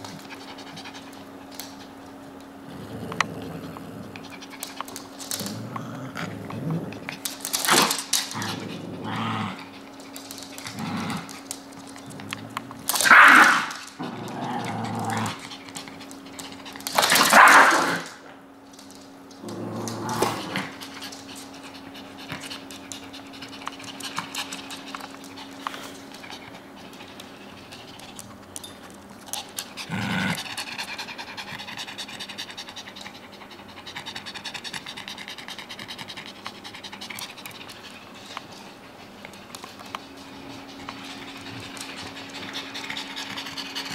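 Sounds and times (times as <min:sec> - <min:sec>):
small dogs panting: 0:00.0 - 0:02.0, 0:29.3 - 0:43.9.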